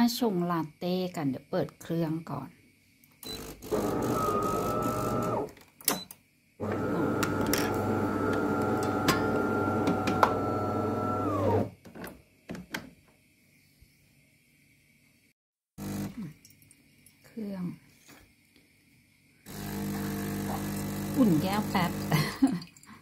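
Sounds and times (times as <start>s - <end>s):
espresso machine pump buzzing: 3.4s - 5.5s, 6.6s - 11.7s, 15.8s - 16.2s, 19.5s - 22.2s.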